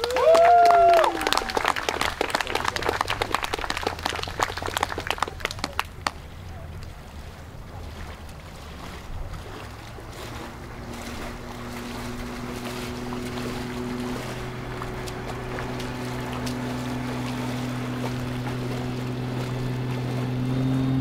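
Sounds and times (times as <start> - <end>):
crowd clapping: 0.0 - 6.9
low steady hum: 0.0 - 21.0
low rumble: 8.4 - 21.0.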